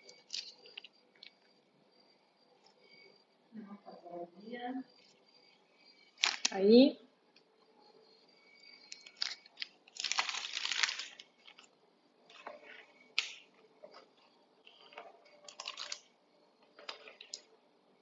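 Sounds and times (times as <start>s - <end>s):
plastic piping bag crinkling: 6.2s - 6.6s, 8.9s - 14.1s, 14.7s - 16.1s, 16.7s - 17.5s.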